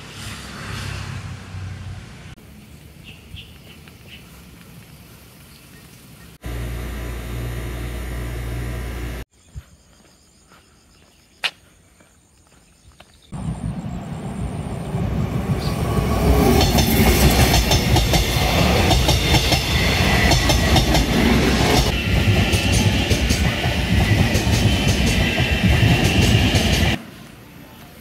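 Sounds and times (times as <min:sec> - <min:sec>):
train high whine: 0:06.4 - 0:09.3, 0:13.4 - 0:28.0
train passing with heavy rumble: 0:13.3 - 0:28.0.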